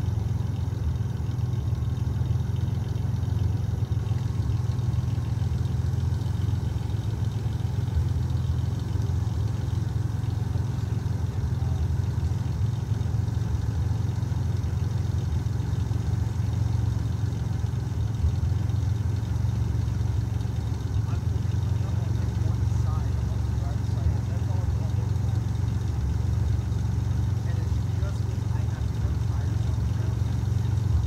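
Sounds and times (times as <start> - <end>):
vehicle engine idling: 0.0 - 31.0.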